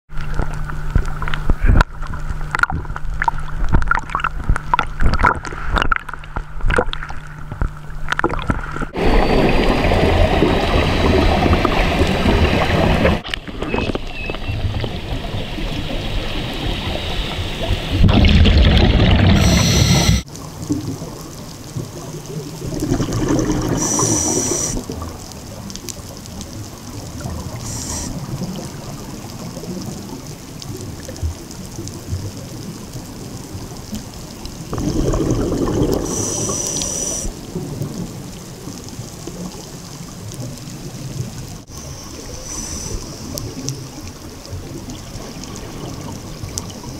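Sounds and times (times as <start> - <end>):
bubbles rushing underwater: 8.2 - 26.1, 34.6 - 36.7
underwater hiss: 18.7 - 20.3, 23.2 - 25.0, 27.5 - 28.5, 34.7 - 37.4, 41.7 - 44.0
regulator hissing: 19.3 - 20.3, 23.8 - 24.8, 27.6 - 28.2, 36.1 - 37.3, 41.8 - 43.4.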